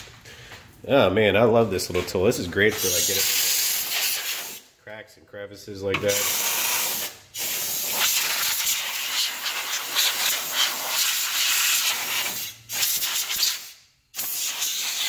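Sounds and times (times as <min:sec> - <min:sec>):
compressed air hissing: 0:02.7 - 0:04.7, 0:06.0 - 0:15.0.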